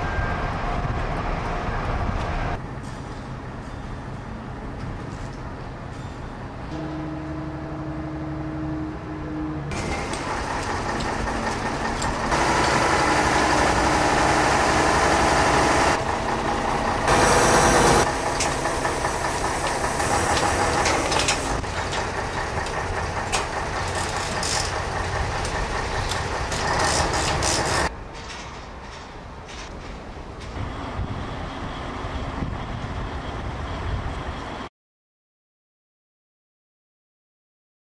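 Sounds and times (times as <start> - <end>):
heavy machinery engines running: 0.0 - 34.7
metallic knocks and clanks: 19.6 - 30.6.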